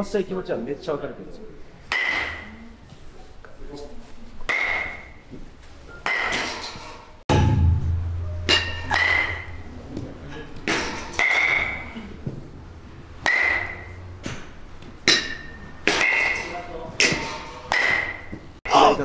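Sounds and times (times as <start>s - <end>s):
low steady hum: 7.3s - 10.2s
metal bat hitting baseball: 7.3s - 11.8s, 13.2s - 14.4s, 15.0s - 18.3s.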